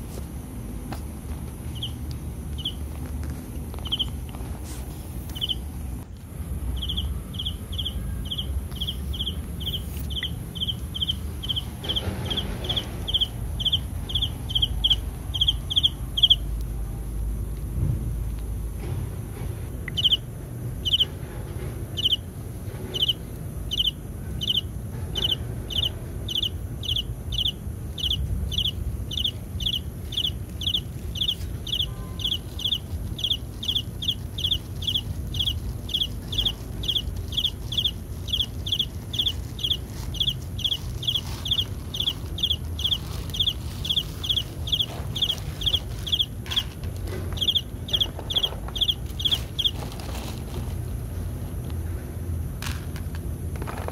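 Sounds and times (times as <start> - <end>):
high repeating chirp: 6.8 - 16.5, 23.0 - 46.7, 47.4 - 49.8.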